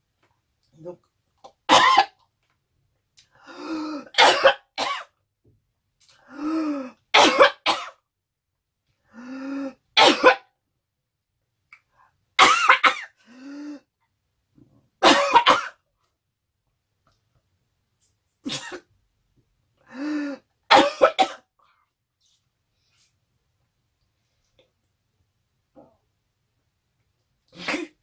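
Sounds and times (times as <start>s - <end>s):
woman coughing hard: 1.7s - 2.2s, 4.0s - 5.1s, 7.2s - 8.0s, 10.0s - 10.5s, 12.4s - 13.2s, 15.0s - 15.8s, 18.5s - 18.9s, 20.7s - 21.5s.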